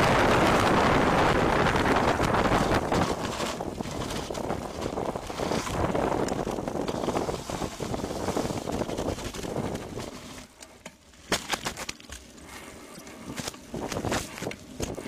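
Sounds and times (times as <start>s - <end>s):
wind buffeting microphone: 0.0s - 10.3s
bike clicks and rattles: 0.0s - 15.0s
bike tyres rolling on dirt: 0.0s - 15.0s.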